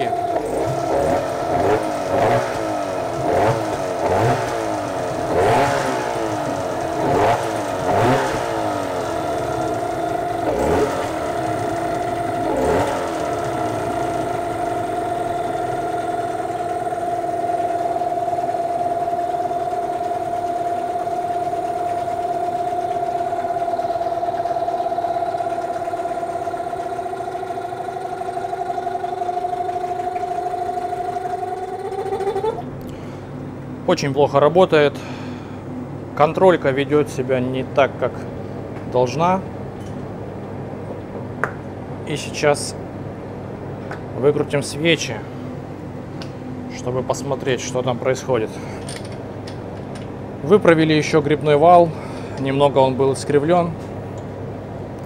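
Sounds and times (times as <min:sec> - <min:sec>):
outboard motor revving: 0:00.0 - 0:33.1.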